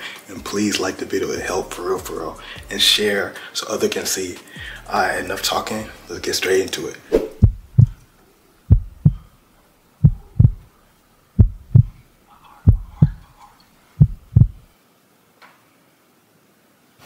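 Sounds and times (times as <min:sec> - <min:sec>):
heartbeat thumps: 0:07.3 - 0:08.0, 0:08.7 - 0:09.3, 0:10.0 - 0:10.7, 0:11.4 - 0:12.0, 0:12.7 - 0:13.2, 0:14.0 - 0:14.7.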